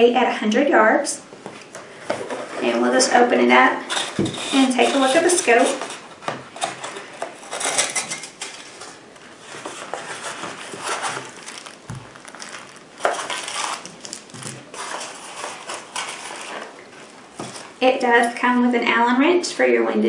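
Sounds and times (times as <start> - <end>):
cardboard and packing rustling: 1.4 - 2.8, 3.8 - 17.9.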